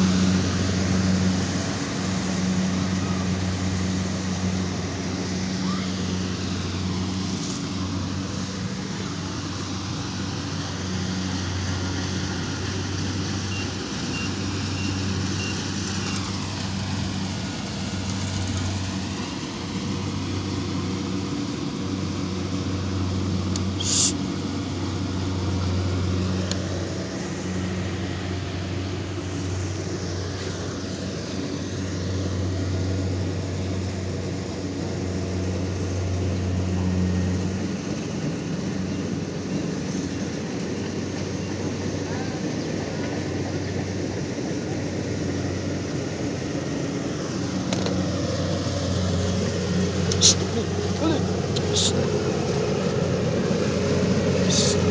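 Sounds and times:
engine humming low: 0.0s - 54.9s.

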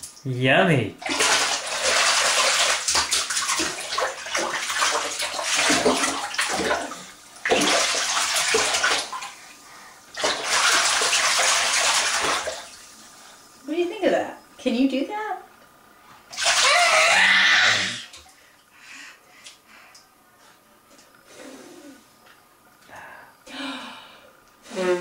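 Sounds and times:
baby splashing bath water: 1.0s - 13.0s, 16.3s - 20.1s.

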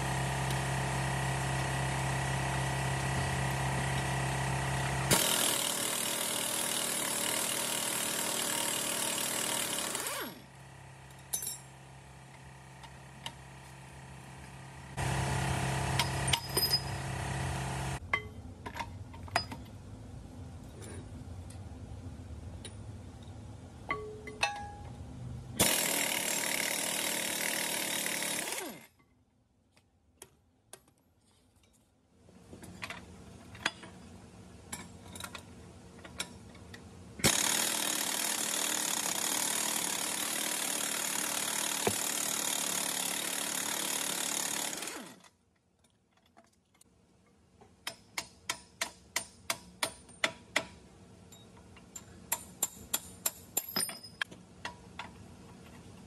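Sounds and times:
air impact wrench bursts: 5.0s - 10.4s, 37.2s - 45.1s.

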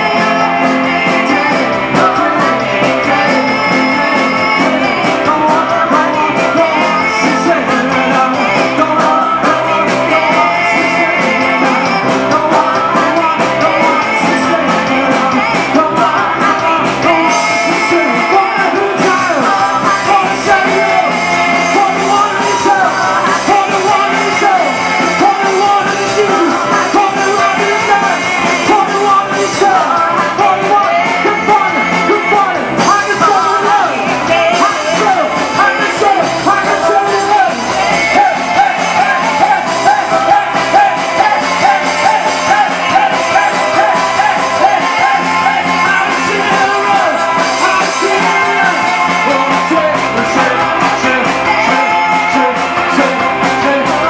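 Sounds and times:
drums: 0.0s - 54.0s
electric guitar: 0.0s - 54.0s
keyboard: 0.0s - 54.0s
man singing lead: 0.0s - 54.0s
women singing backing vocals: 36.6s - 49.0s.

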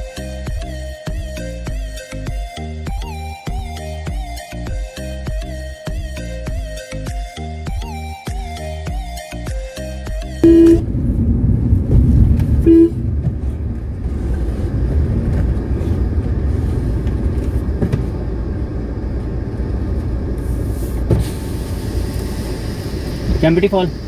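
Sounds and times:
car engine and road noise: 0.0s - 24.0s
car horn toot: 10.4s - 10.8s, 12.6s - 13.1s.

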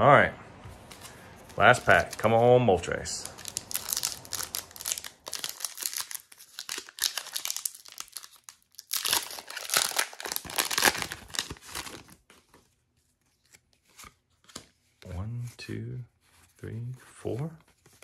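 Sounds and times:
foil wrapper tearing and crinkling: 3.2s - 12.2s.

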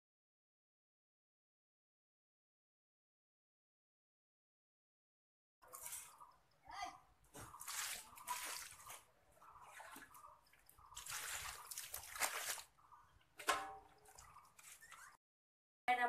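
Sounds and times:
mug scooping water from drum: 5.6s - 6.4s, 7.3s - 15.2s
water splashing on concrete floor: 7.4s - 9.0s, 9.7s - 12.8s.

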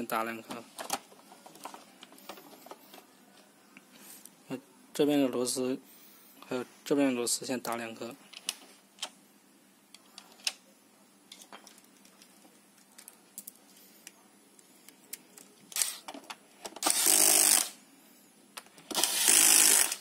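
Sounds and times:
clicks and taps of handling screws: 11.3s - 14.2s
electric screwdriver whirring: 16.8s - 17.8s, 18.9s - 20.0s.

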